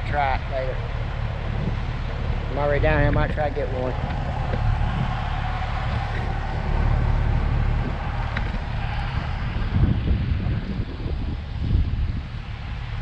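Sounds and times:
faint engine hum: 0.0s - 13.0s
wind rumbling on microphone: 0.0s - 13.0s.

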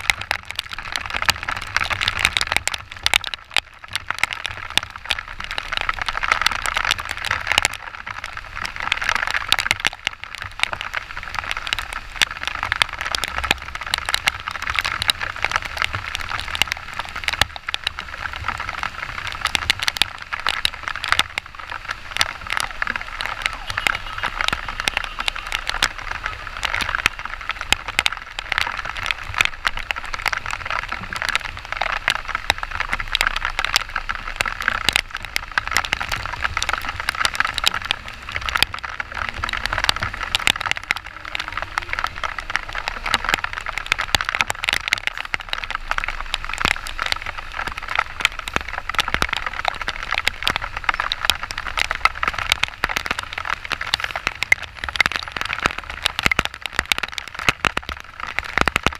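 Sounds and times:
heavy rain drops crackling: 0.0s - 58.9s
low rumble: 36.2s - 44.6s.

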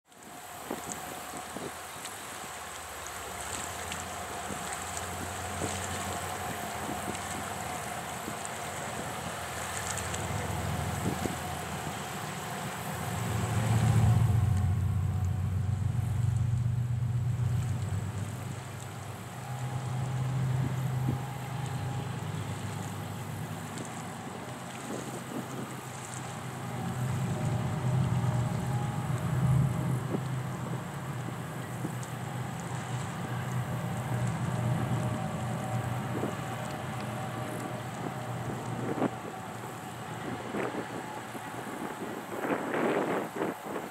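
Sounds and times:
diesel locomotive engine drone: 0.1s - 43.9s
distant freight train rumble: 0.1s - 43.9s
wind noise: 4.4s - 43.9s.

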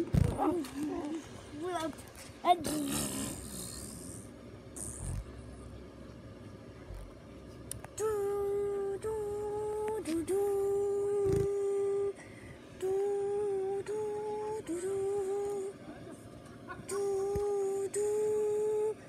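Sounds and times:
person humming long notes: 8.0s - 12.2s, 12.8s - 15.7s, 16.9s - 19.0s.

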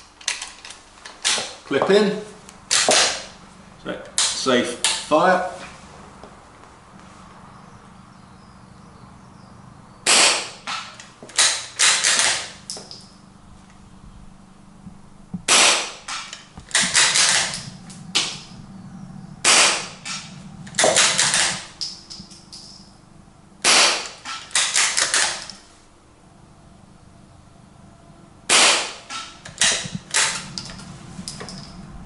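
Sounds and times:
muffled rifle shots: 2.7s - 3.4s, 10.0s - 12.6s, 15.4s - 18.6s, 19.4s - 22.8s, 23.6s - 25.5s, 28.5s - 30.5s.

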